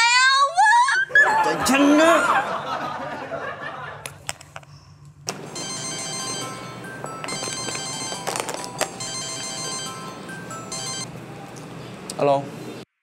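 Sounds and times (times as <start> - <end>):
phone ringtone melody: 5.4 - 11.1.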